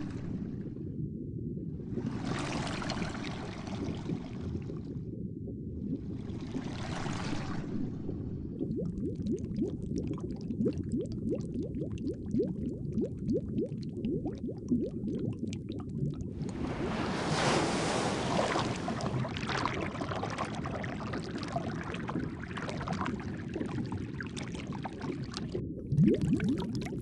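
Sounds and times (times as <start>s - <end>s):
underwater bubbling: 0.0s - 27.0s
rushing wash of water: 16.4s - 21.5s.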